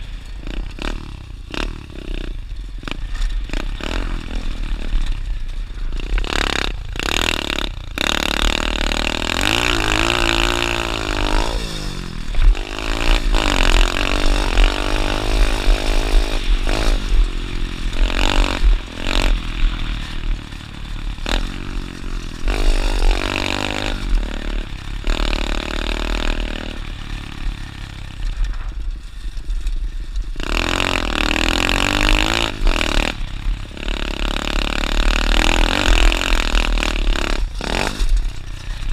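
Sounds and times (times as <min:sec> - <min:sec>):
dirt bike engine revving: 0:00.0 - 0:29.4, 0:30.0 - 0:38.9.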